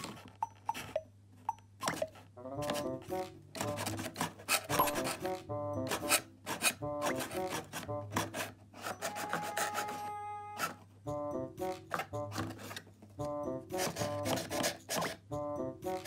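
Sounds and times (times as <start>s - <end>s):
cardboard scraping: 2.6s - 10.9s, 11.7s - 13.0s.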